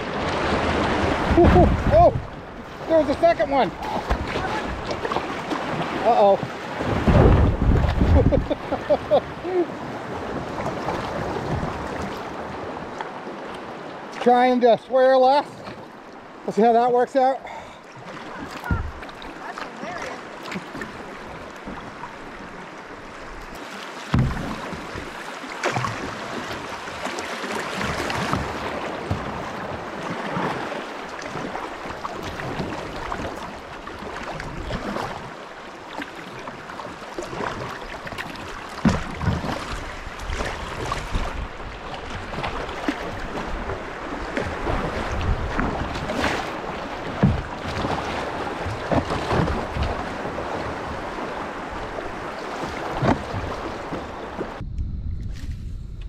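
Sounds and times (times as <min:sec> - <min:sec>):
paddle splash or knock: 0:00.0 - 0:14.4, 0:17.9 - 0:54.6
water rushing: 0:00.0 - 0:54.6
wind on microphone: 0:06.8 - 0:08.7, 0:52.8 - 0:56.0.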